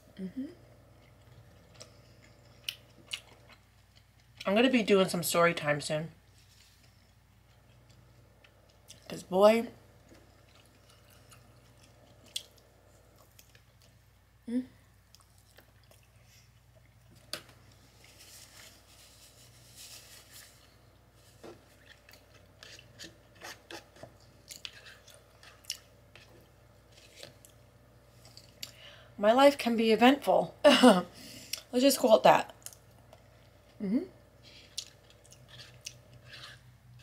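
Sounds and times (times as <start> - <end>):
person humming: 0.1 - 0.8, 14.4 - 14.8, 33.8 - 34.2
chewing soft food: 0.8 - 4.5, 6.4 - 9.1, 10.0 - 14.1, 15.0 - 19.3, 20.5 - 28.8, 34.4 - 37.0
paper napkin rustling: 17.8 - 22.0.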